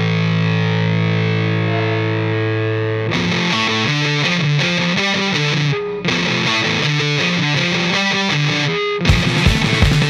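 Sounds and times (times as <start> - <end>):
rock music distorted electric guitar: 0.0 - 10.0.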